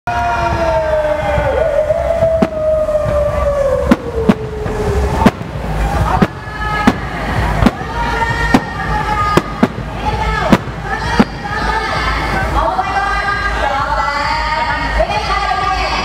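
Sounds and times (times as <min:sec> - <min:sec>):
low rumble: 0:00.2 - 0:13.6
fireworks bangs: 0:02.0 - 0:12.5.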